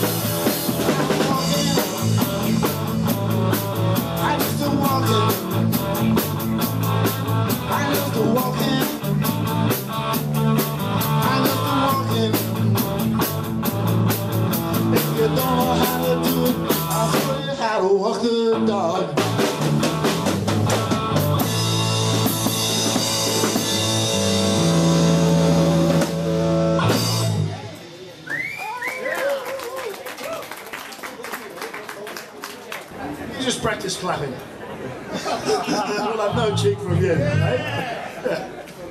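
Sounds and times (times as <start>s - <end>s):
live rock band playing: 0.0s - 29.1s, 36.1s - 37.6s.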